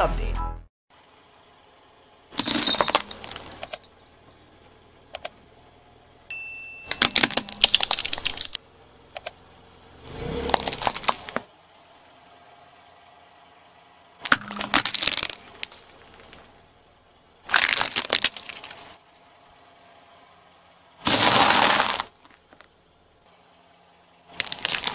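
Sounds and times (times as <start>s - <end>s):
tyre crushing brittle objects: 2.4s - 3.7s, 6.9s - 8.6s, 10.4s - 11.4s, 14.2s - 16.6s, 17.5s - 19.0s, 21.1s - 22.7s, 24.3s - 24.9s
ornament balls cracking: 2.5s - 4.0s, 7.0s - 8.6s, 10.5s - 11.4s, 14.3s - 16.6s, 17.5s - 19.0s, 24.4s - 24.9s.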